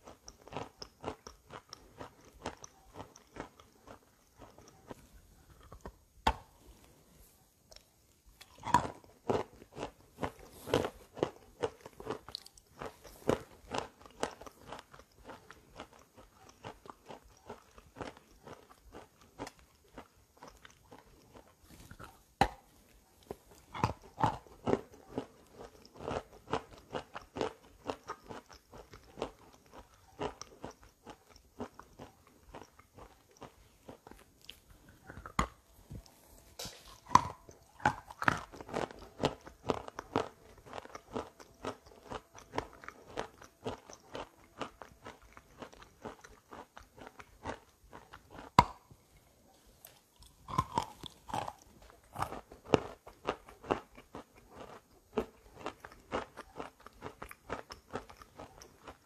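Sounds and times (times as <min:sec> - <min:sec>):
person crunching and chewing: 0:00.0 - 0:07.1, 0:07.7 - 0:59.0.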